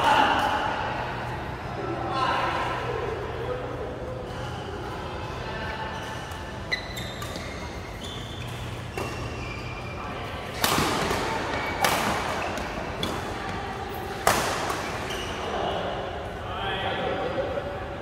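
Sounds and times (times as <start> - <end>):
court shoes squeaking: 3.6 - 15.8
racket hitting shuttlecock: 10.5 - 13.2, 14.1 - 15.0.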